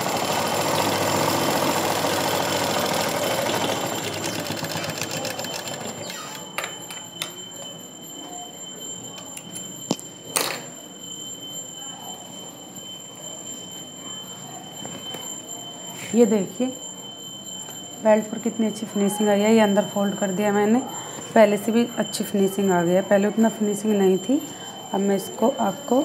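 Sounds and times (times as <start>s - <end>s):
sewing machine clattering: 0.0s - 6.4s.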